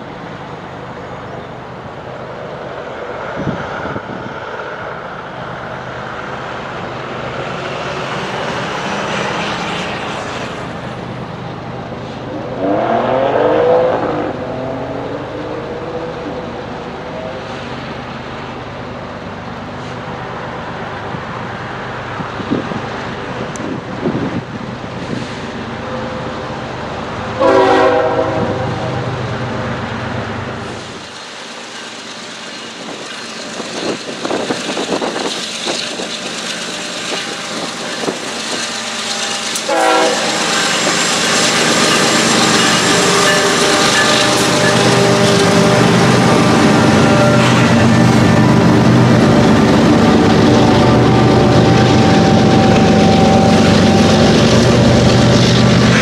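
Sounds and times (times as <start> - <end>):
passing train rumbling: 0.0 - 56.0
locomotive horn blasts: 27.4 - 29.0, 39.5 - 40.6, 42.6 - 48.4.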